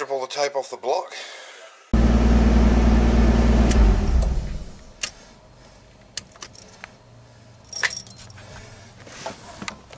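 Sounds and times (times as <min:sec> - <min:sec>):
car engine idling: 0:02.0 - 0:05.0
keys jingling: 0:06.3 - 0:06.9, 0:07.6 - 0:08.4.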